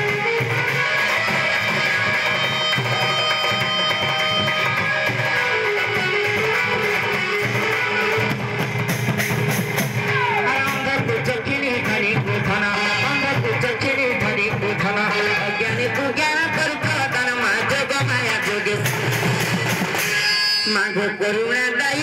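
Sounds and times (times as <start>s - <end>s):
sharp percussive strokes: 0.0s - 10.9s, 18.0s - 20.8s
barrel drum beating: 0.0s - 12.7s
string-like melody: 0.0s - 21.1s.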